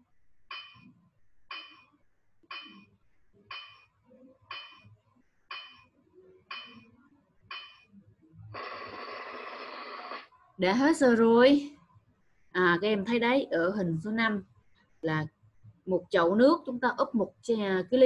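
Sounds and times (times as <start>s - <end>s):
bright clinking timer ticks: 0.5s - 0.9s, 1.5s - 1.9s, 3.5s - 3.9s, 4.5s - 4.8s.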